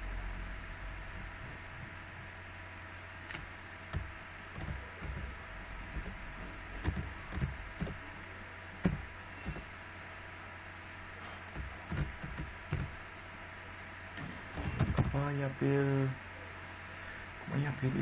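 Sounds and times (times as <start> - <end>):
low electrical hum: 0.0 - 18.0
keyboard keystrokes: 4.0 - 5.3, 6.8 - 8.0.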